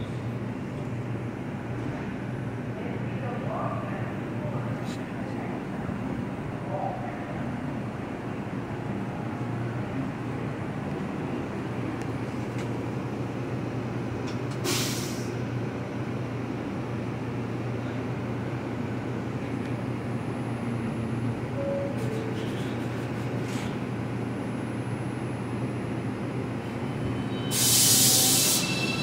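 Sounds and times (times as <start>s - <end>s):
subway train humming: 0.0s - 29.0s
hiss of released air: 14.6s - 15.3s, 27.5s - 28.8s.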